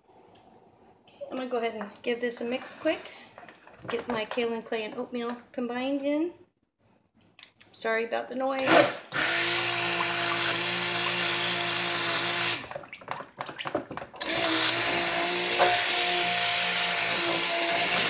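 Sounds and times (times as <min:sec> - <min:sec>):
stick blender motor hum: 0:08.6 - 0:12.7, 0:14.2 - 0:18.0.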